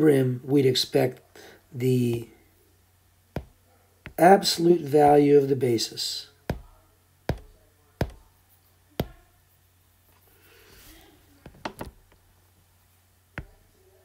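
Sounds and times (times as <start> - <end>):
stylus tapping on glass screen: 3.4 - 4.2, 6.5 - 8.3, 9.0 - 9.2, 13.4 - 13.6.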